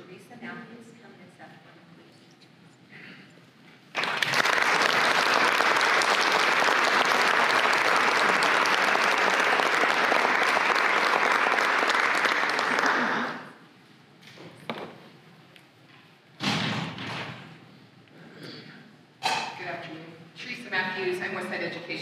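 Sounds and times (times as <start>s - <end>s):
audience applauding: 3.9s - 13.5s.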